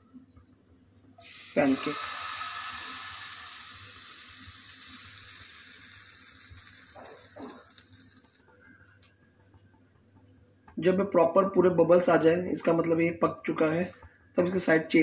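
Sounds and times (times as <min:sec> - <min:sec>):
batter sizzling in frying pan: 0:01.2 - 0:08.4.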